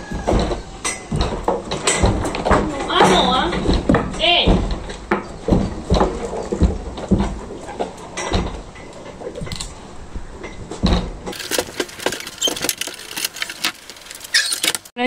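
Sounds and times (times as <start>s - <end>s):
horse hooves knocking on floor: 0.0s - 8.8s
metal partition clinking and rattling: 0.0s - 9.8s.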